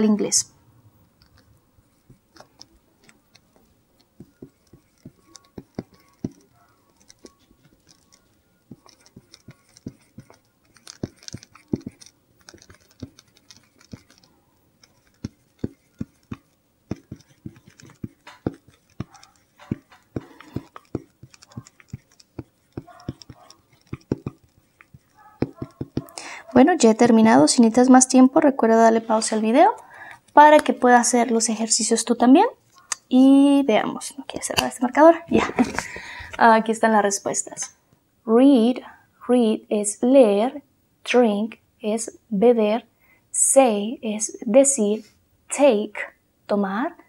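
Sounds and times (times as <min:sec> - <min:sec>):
marker pen tapping and scratching: 0:01.2 - 0:27.0, 0:30.3 - 0:30.8.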